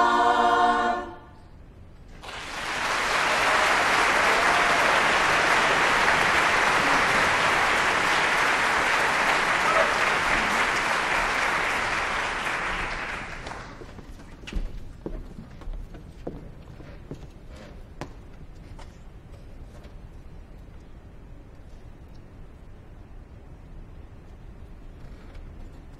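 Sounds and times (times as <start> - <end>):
audience applauding: 2.1 - 14.0.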